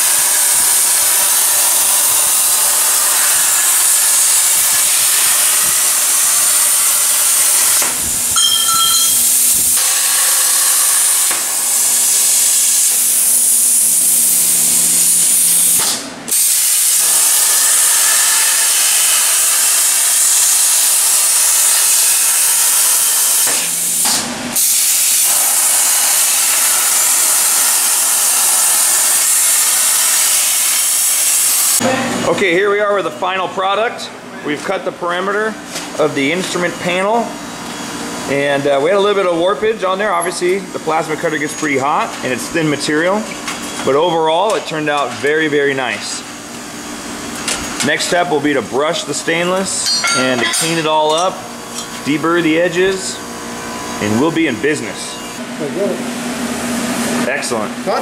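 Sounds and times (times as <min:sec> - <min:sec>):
plasma torch arc hissing: 0:00.0 - 0:08.4, 0:09.0 - 0:31.8.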